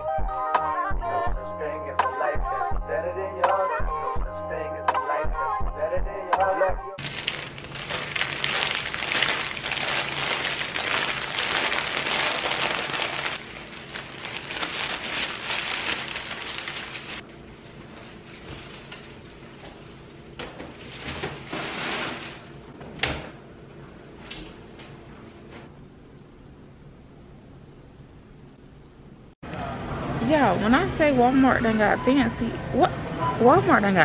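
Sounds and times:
plastic sleeve crinkling: 0:07.0 - 0:20.1.

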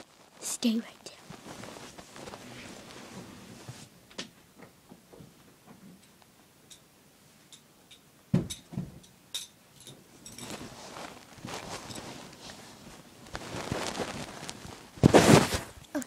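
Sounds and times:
rustling: 0:00.0 - 0:04.0, 0:10.2 - 0:16.0.

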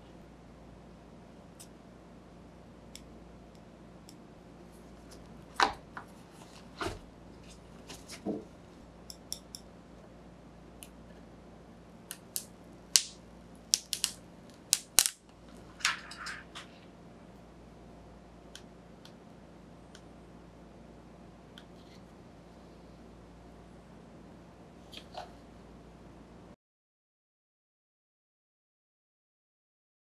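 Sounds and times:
protective film crackling: 0:12.1 - 0:16.8.

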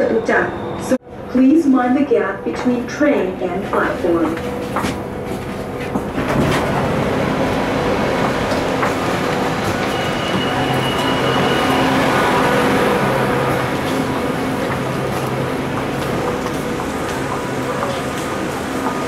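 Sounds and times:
subway train noise: 0:00.0 - 0:19.0
train doors sliding open: 0:04.4 - 0:19.0
thin high tone: 0:09.5 - 0:15.4.

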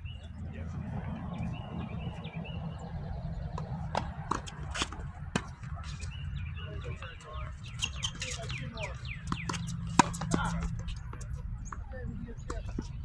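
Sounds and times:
steady low rumble: 0:00.0 - 0:07.7
tennis ball struck by rackets: 0:03.5 - 0:05.8, 0:09.2 - 0:10.8.

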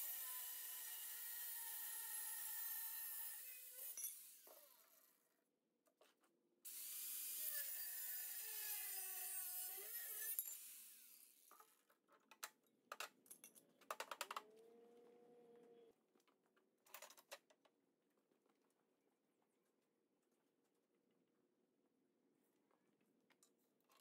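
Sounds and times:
angle grinder cutting steel: 0:00.0 - 0:04.5, 0:06.7 - 0:11.4.

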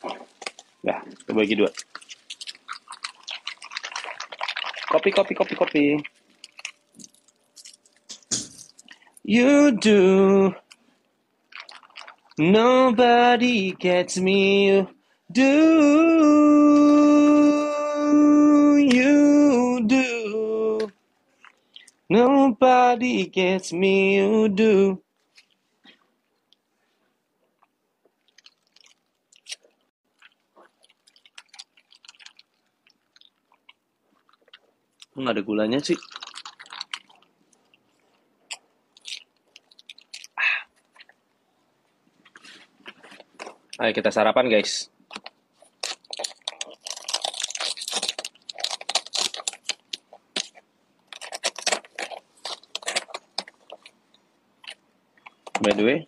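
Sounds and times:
faint crunchy chewing: 0:00.0 - 0:09.3, 0:10.5 - 0:12.4, 0:25.1 - 0:43.9, 0:44.9 - 0:56.0.

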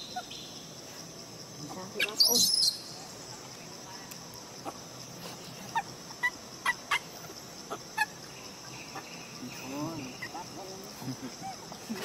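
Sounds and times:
insects droning: 0:00.0 - 0:12.0
sharp clucking calls: 0:04.6 - 0:12.0.

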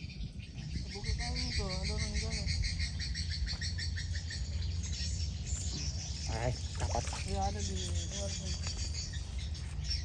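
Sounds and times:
insects chirping trill: 0:00.0 - 0:10.0.

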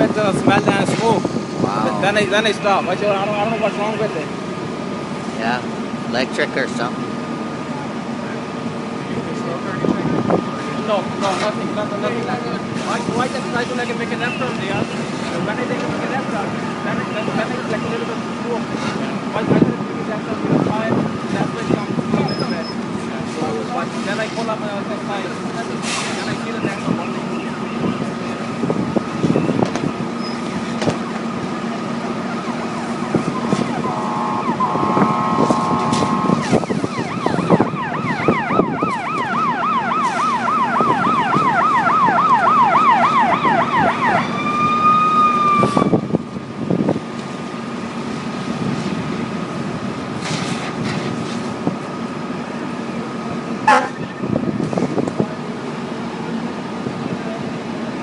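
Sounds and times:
steady engine drone: 0:00.0 - 0:58.0
emergency siren yelping: 0:31.4 - 0:46.2
falling siren blip: 0:32.2 - 0:46.0
horn-like blast: 0:33.8 - 0:36.6.

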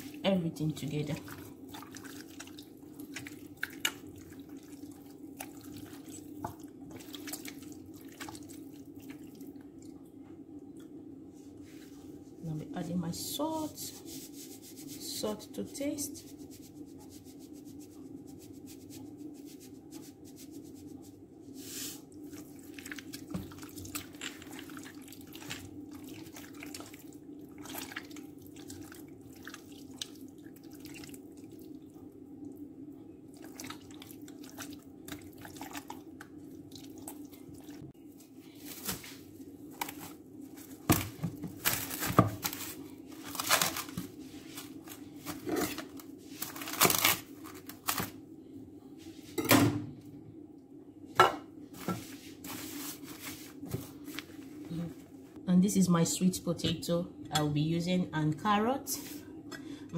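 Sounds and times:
wet squelching of raw chicken: 0:01.1 - 0:09.6, 0:21.7 - 0:31.9, 0:33.3 - 0:47.7
plastic cling film crinkling: 0:38.5 - 0:48.2.

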